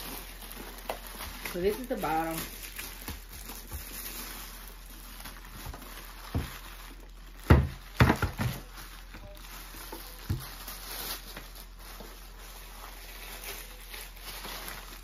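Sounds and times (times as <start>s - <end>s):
plastic wrapping rustling: 0.0s - 15.0s.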